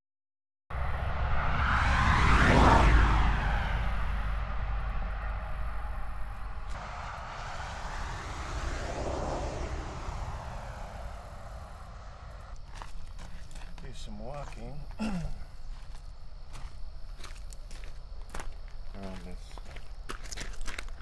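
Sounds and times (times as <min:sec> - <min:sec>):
car passing close by: 0:00.7 - 0:12.6
passing traffic: 0:00.7 - 0:14.1.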